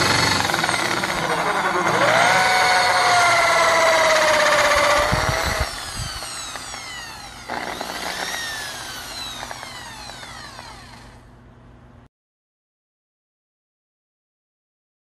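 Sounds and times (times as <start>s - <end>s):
electric drill whining: 0.0s - 11.3s.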